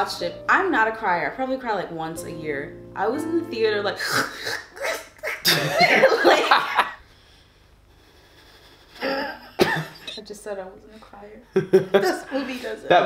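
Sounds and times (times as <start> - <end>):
person mock sobbing: 4.0 - 6.2, 8.9 - 10.1.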